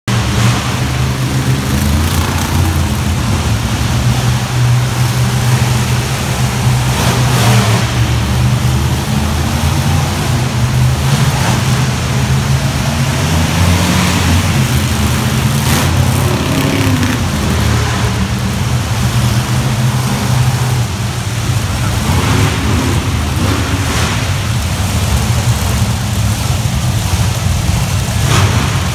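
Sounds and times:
monster truck engines droning: 0.0 - 28.9
engines revving: 0.1 - 28.9.

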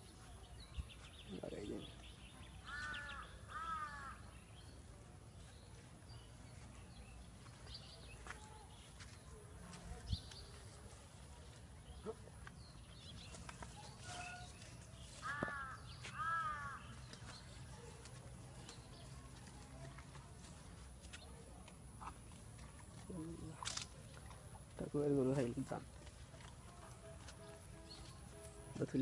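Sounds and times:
faint outdoor background: 0.0 - 29.0
crow cawing: 2.6 - 4.2, 15.2 - 16.9.

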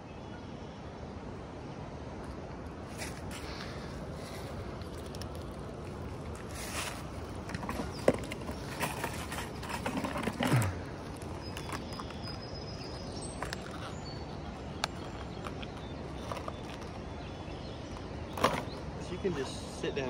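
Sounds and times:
knocks and rustles: 4.8 - 17.1.

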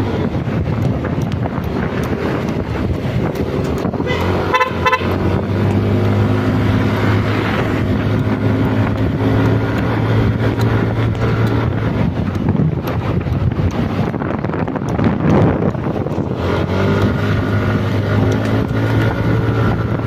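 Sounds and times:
scooter engine running: 0.0 - 20.0
wind buffeting microphone: 0.0 - 20.0
horn beeps: 4.0 - 5.2.

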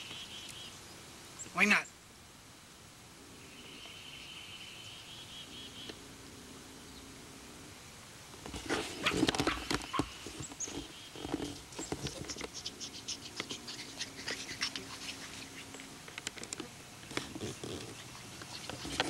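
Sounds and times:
light pattering and rustling: 8.4 - 19.0.

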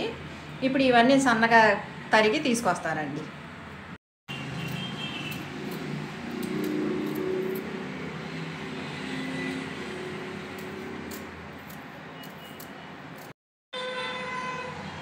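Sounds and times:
vehicle engine hum passing: 4.4 - 12.0
knife scraping gourd: 4.7 - 7.8, 10.4 - 13.4.

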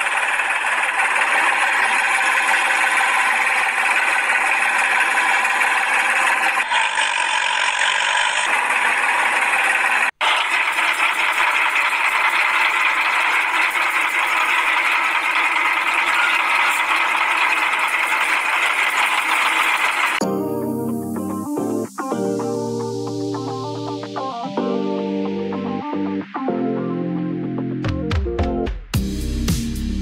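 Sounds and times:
small electric motor whining: 0.0 - 20.2.

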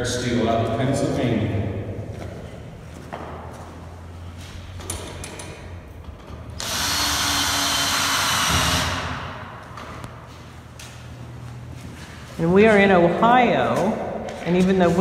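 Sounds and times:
cordless drill driving a screw: 6.6 - 9.2.

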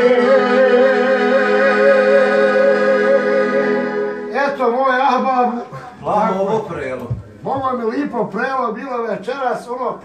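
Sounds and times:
piano accordion chords: 0.0 - 4.7.

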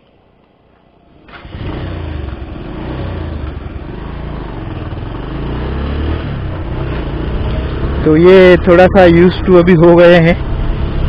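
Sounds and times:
motorcycle engine starting and idling: 0.9 - 9.0.

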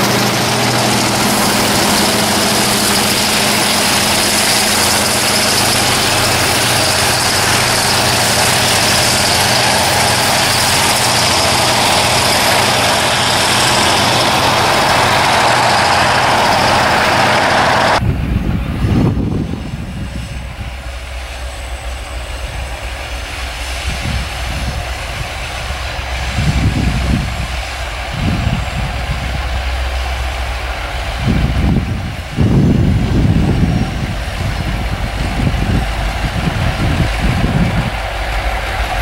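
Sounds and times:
distant diesel locomotive drone: 0.0 - 39.0
freight train passing close: 0.0 - 39.0.

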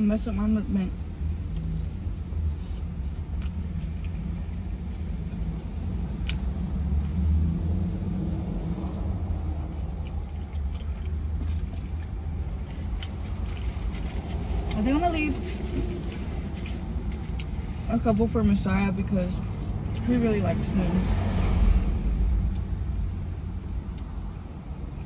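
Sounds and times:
faint eating clicks: 9.6 - 13.3.

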